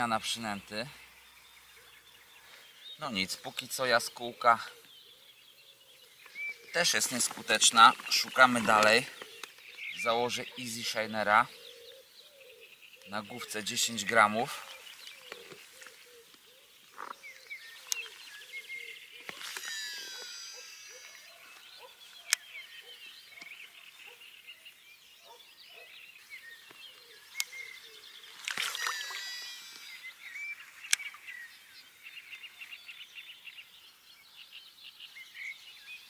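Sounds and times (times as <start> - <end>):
short low bird calls: 0.0 - 33.1
songbirds singing: 0.0 - 36.0
rapid chirping trills: 17.0 - 23.0, 27.2 - 31.9
sharp clicks: 30.8 - 31.2.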